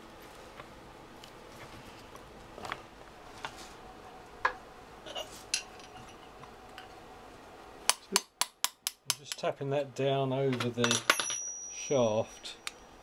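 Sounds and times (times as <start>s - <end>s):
metal tools clinking: 10.6s - 12.8s.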